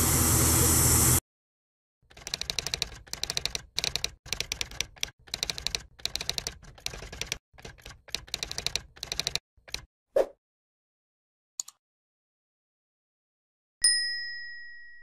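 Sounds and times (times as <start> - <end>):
keyboard typing clicks: 2.1 - 9.9, 11.6 - 11.8.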